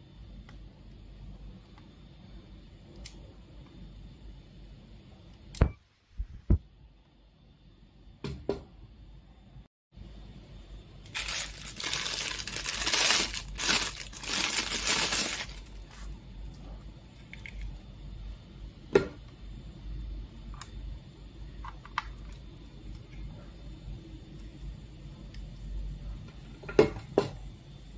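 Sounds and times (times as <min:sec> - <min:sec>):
plastic bag crinkling: 0:11.1 - 0:16.2.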